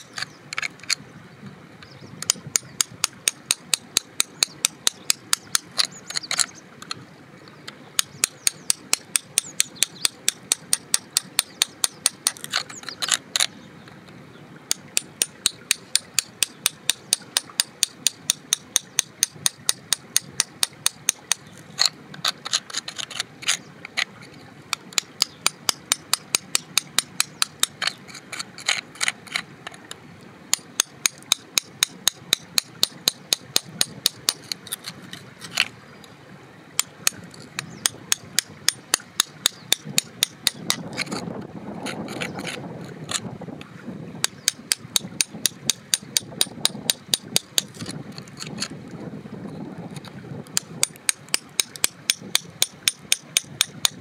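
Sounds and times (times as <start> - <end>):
metal pick chipping rock: 2.3 - 6.5, 8.0 - 13.5, 14.7 - 23.6, 24.8 - 29.4, 30.5 - 35.7, 36.8 - 41.2, 44.2 - 48.7, 50.6 - 54.0.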